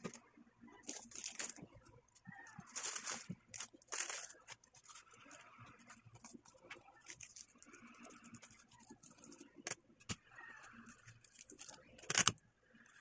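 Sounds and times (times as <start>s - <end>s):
plastic bags crinkling: 0.8s - 1.8s, 2.5s - 9.8s, 10.8s - 12.4s.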